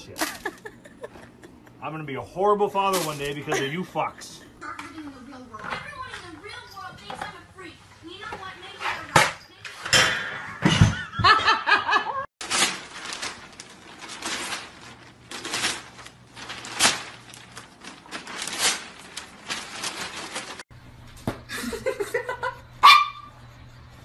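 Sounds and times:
newspaper crinkling and tearing: 12.4s - 20.6s.

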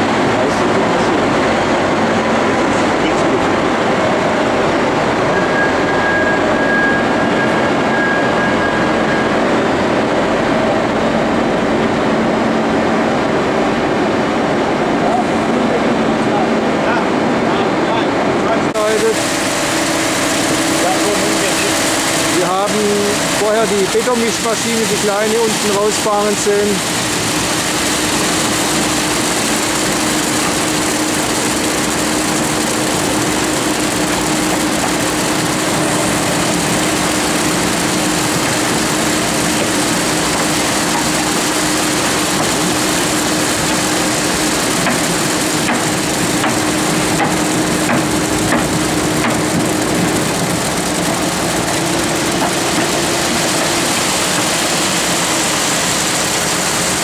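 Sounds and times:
concrete mixer engine running: 0.0s - 57.0s
wet concrete pouring down chute: 0.0s - 57.0s.

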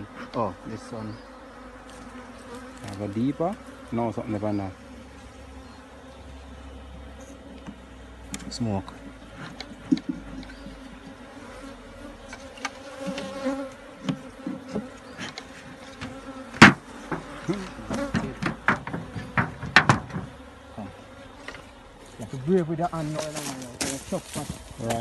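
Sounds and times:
bees buzzing: 0.0s - 25.0s
wooden knocks on hive box: 12.3s - 20.4s.

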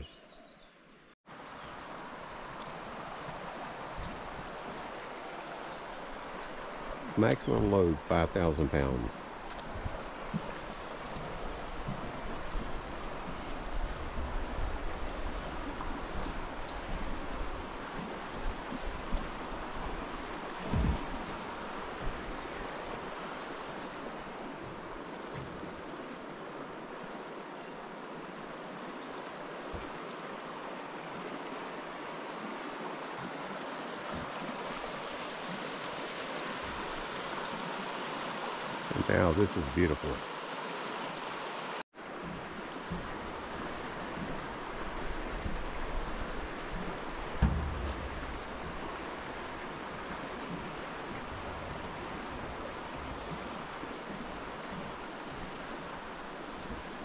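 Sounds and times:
river current rushing: 1.3s - 57.0s
short low thump: 20.6s - 21.2s, 47.2s - 49.7s.

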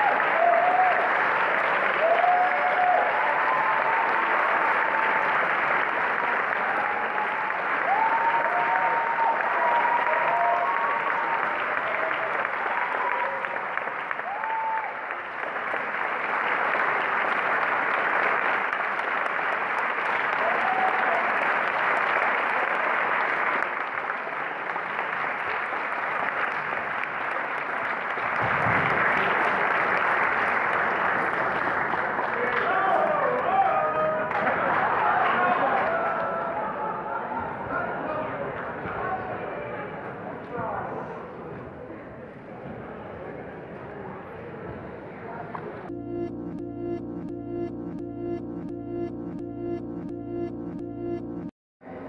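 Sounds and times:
large audience applauding: 0.0s - 39.3s.

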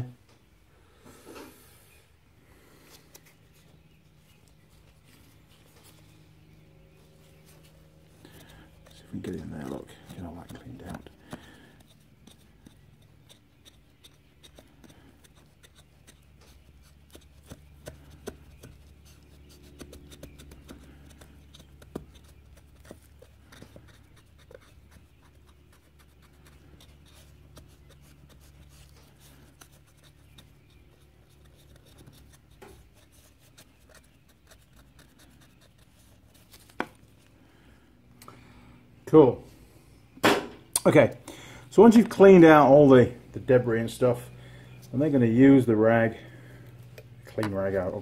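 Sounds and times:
rag rubbing and scratching: 7.0s - 37.2s.

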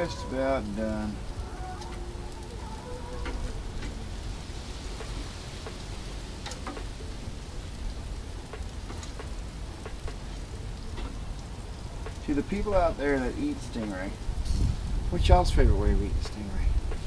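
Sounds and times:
meat sizzling on a grill: 0.0s - 17.0s.

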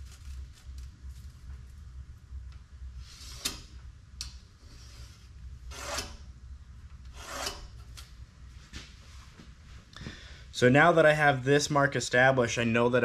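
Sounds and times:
marker scratching on steel: 4.7s - 6.2s, 7.1s - 7.7s.

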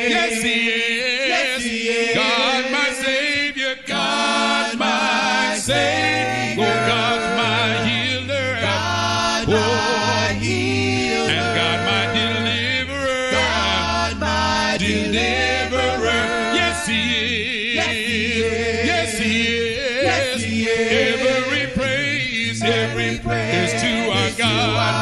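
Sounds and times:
vocal group singing in harmony: 0.0s - 25.0s
low sustained bass voice: 6.6s - 25.0s.

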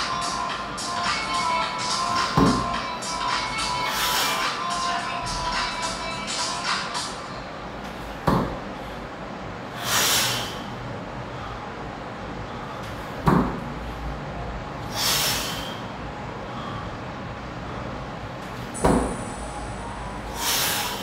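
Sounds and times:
kettlebell thump: 2.3s - 2.7s, 8.2s - 8.6s, 13.2s - 13.6s, 18.8s - 19.3s
forceful hissing exhale: 3.8s - 4.6s, 9.7s - 10.7s, 14.8s - 15.9s, 20.3s - 21.0s.

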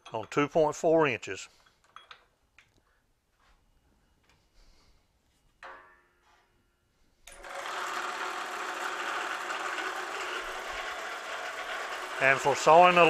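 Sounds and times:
metallic clank ringing: 5.6s - 6.2s
metal-cutting saw running: 7.4s - 13.0s.

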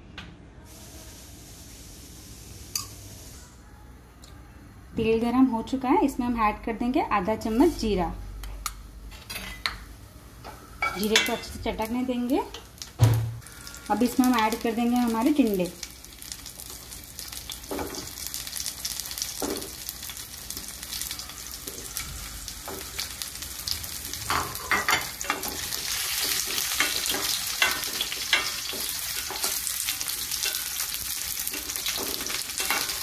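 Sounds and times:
gourds sizzling in hot oil: 0.7s - 3.4s, 10.6s - 33.0s.

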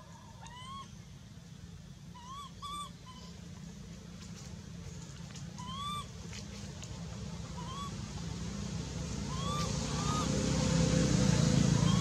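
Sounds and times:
baby monkey crying: 0.4s - 0.9s, 2.2s - 3.4s, 5.6s - 6.1s, 7.6s - 8.0s, 9.2s - 10.3s.

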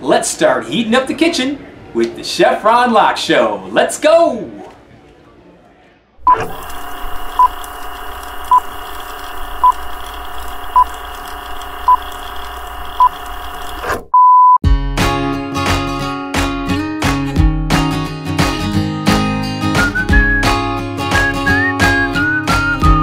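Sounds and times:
plucked guitar music: 14.7s - 23.0s.

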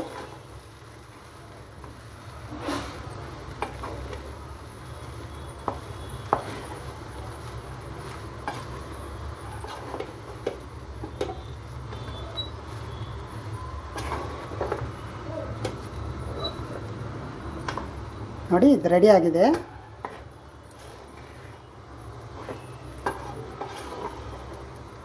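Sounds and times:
spatula scraping rice in pot: 0.0s - 0.4s, 2.5s - 4.0s, 8.0s - 11.3s, 13.9s - 14.9s, 19.6s - 21.6s, 22.2s - 24.8s.

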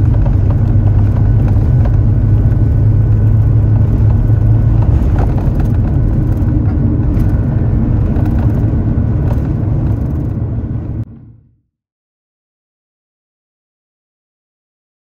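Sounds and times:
knocks and rattles: 0.0s - 11.0s
jet engines roaring at takeoff: 0.0s - 11.1s
tyre rumble: 0.0s - 11.1s.

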